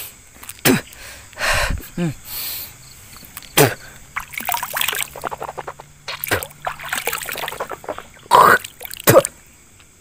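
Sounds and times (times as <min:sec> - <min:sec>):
liquid splashing and dribbling: 0:04.1 - 0:09.3.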